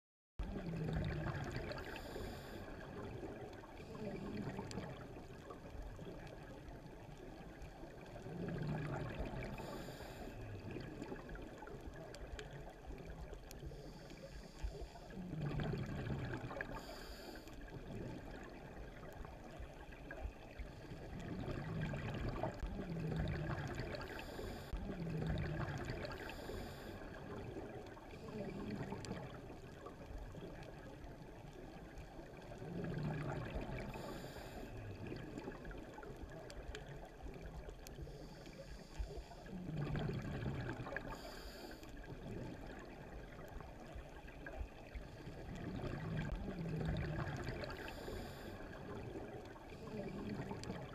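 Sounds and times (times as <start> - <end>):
exhaled bubbles underwater: 0.4 - 50.9
underwater hiss: 1.5 - 4.6, 8.1 - 10.8, 13.6 - 18.4, 23.7 - 24.8, 25.8 - 27.2, 33.1 - 36.1, 38.0 - 43.9, 45.0 - 50.8.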